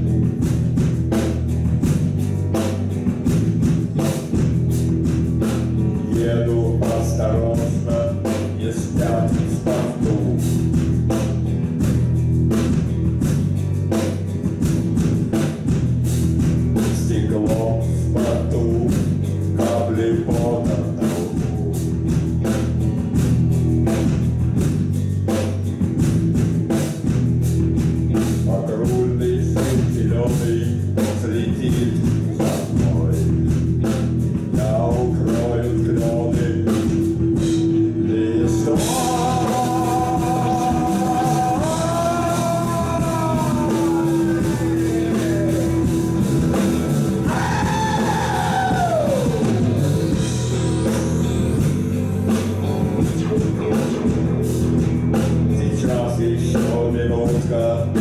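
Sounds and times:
bass: 0:00.0 - 0:58.0
electric guitar: 0:00.0 - 0:58.0
steady drum beat: 0:00.0 - 0:58.0
keyboard: 0:28.0 - 0:58.0.

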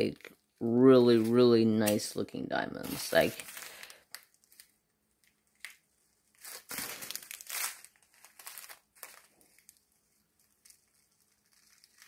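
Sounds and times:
plastic bag crinkling: 0:02.8 - 0:04.8, 0:06.3 - 0:12.0
small beads shifting: 0:06.4 - 0:12.0.

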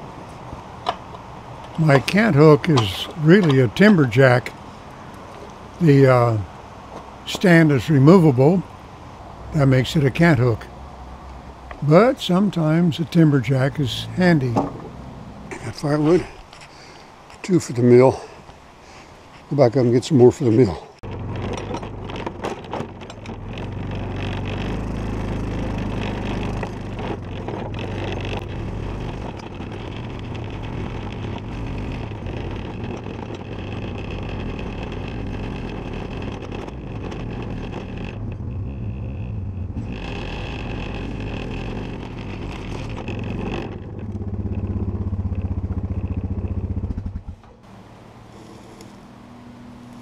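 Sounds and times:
quad bike engine running: 0:13.2 - 0:15.7, 0:21.0 - 0:49.0.

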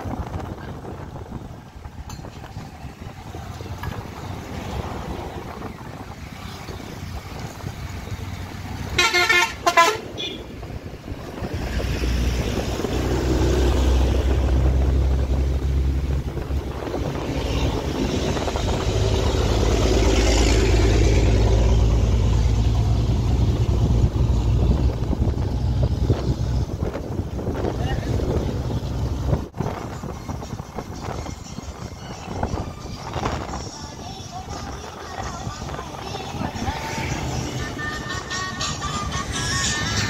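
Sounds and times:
road noise: 0:00.0 - 0:40.0
vehicle engine rumble: 0:00.0 - 0:40.0
vehicle horn toots: 0:08.9 - 0:10.5.

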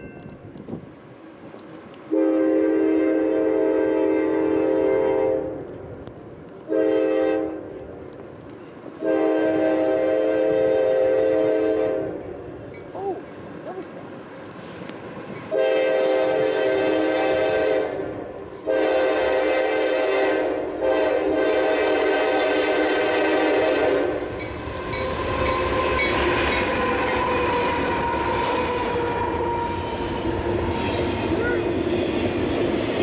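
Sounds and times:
train wheels rumbling on rail: 0:00.0 - 0:33.0
locomotive air horn blasts: 0:02.1 - 0:05.6, 0:06.7 - 0:07.7, 0:09.0 - 0:12.2, 0:15.5 - 0:31.7.

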